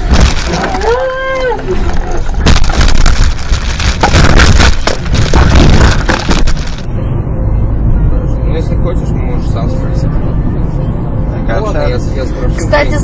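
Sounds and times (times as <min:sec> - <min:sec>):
car crashing and tumbling: 0:00.0 - 0:06.9.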